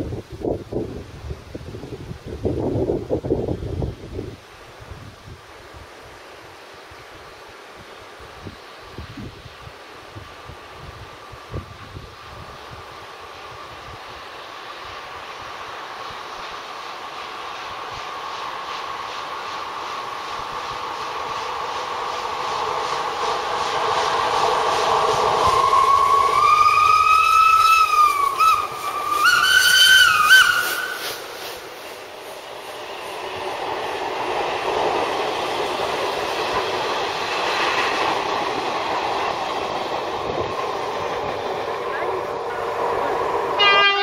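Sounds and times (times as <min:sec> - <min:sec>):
steam locomotive working hard: 0:00.0 - 0:44.0
locomotive whistle blasts: 0:25.2 - 0:31.3, 0:43.6 - 0:44.0.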